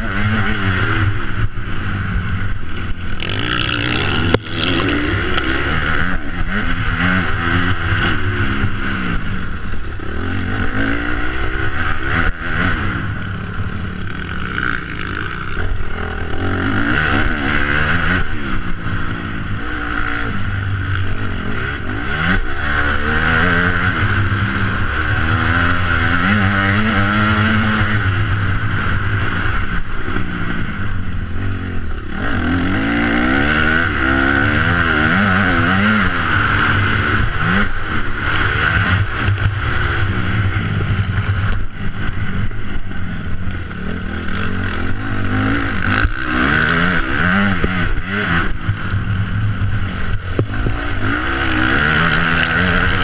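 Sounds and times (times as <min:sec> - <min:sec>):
motocross bike engine revving: 0:00.0 - 0:53.0.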